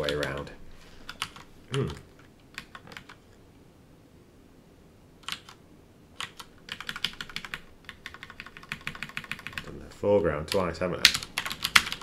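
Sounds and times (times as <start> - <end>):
computer keyboard typing: 0.0 - 0.5, 1.1 - 3.2, 5.2 - 5.6, 6.2 - 9.7, 10.5 - 12.0.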